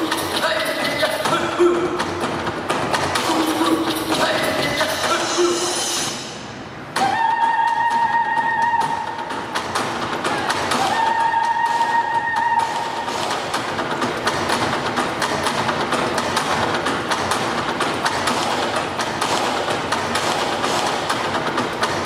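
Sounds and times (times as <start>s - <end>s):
fast dense percussion: 0.0s - 6.4s
folk dance music: 0.0s - 22.0s.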